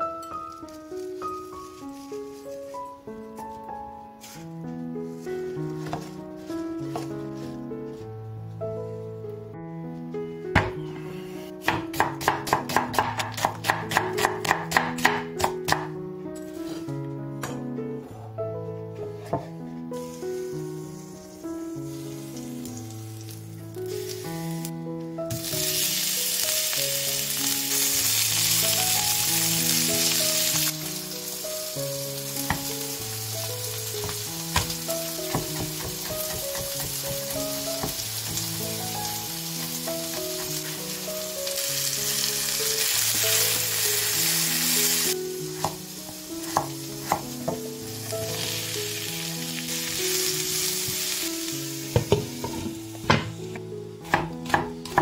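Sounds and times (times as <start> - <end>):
soft background music: 0.0 - 55.0
food sizzling in hot oil: 20.0 - 24.7, 25.3 - 53.4.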